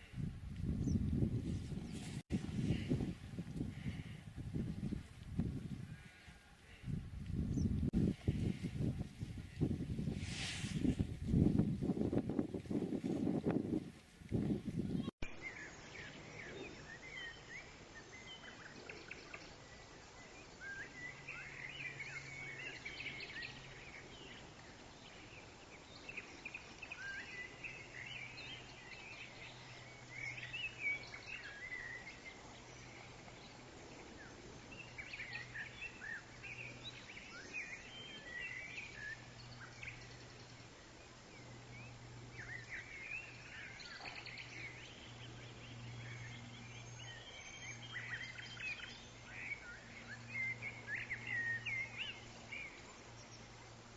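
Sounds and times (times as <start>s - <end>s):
low steady hum: 10.9s - 53.9s
small birds chirping: 14.3s - 53.9s.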